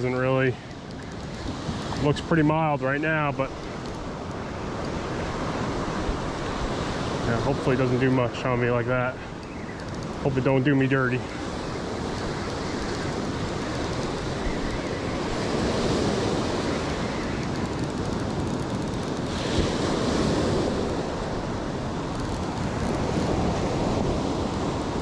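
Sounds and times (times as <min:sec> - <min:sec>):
ocean surf breaking: 0:00.0 - 0:25.0
wind buffeting microphone: 0:00.0 - 0:25.0.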